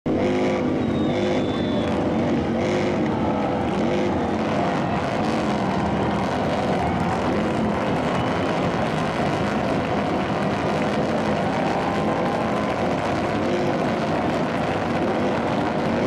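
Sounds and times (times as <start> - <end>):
crowd shouting and cheering: 0.1 - 16.0.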